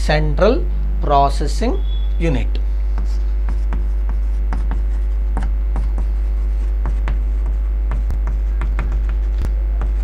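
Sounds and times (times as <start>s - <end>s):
mains hum: 0.0s - 10.0s
chalk tapping on chalkboard: 3.0s - 10.0s.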